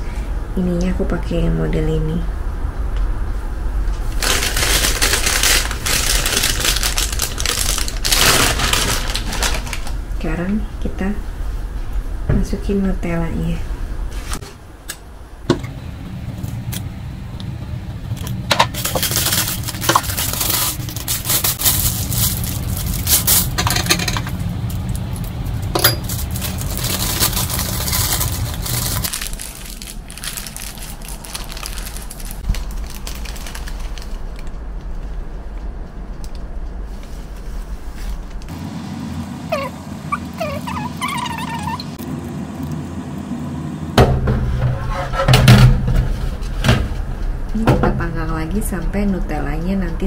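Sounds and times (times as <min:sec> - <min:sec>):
steady low hum: 0:00.0 - 0:50.0
plastic bag crinkling: 0:04.0 - 0:10.1, 0:18.7 - 0:34.5.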